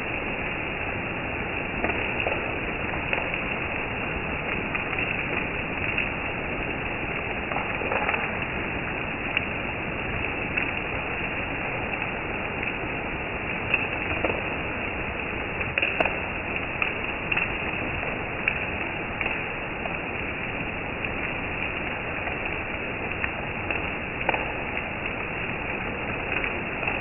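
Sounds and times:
heavy rain on trees and grass: 0:00.0 - 0:27.0
sharp taps of single raindrops: 0:01.8 - 0:03.8, 0:07.4 - 0:08.6, 0:13.6 - 0:14.6, 0:15.5 - 0:20.0, 0:21.0 - 0:27.0.

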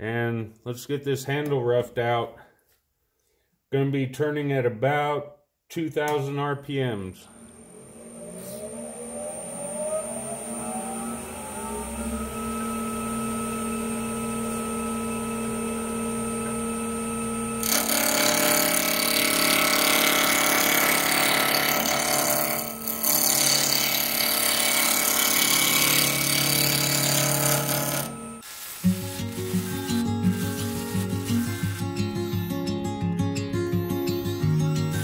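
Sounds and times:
lathe motor whining: 0:07.3 - 0:32.6
gouge cutting spinning wood: 0:17.6 - 0:32.2.

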